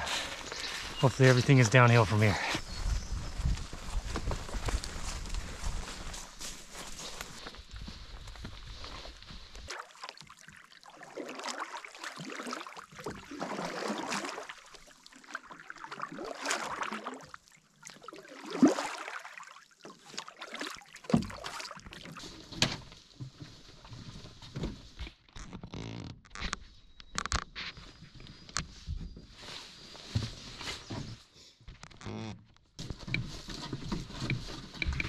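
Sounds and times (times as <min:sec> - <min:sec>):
footsteps on forest trail: 0:00.0 - 0:09.7.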